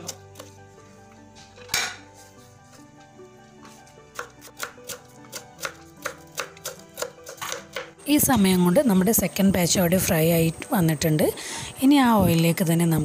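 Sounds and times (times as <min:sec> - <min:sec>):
knife slicing cabbage: 0:00.0 - 0:00.6, 0:03.6 - 0:08.0.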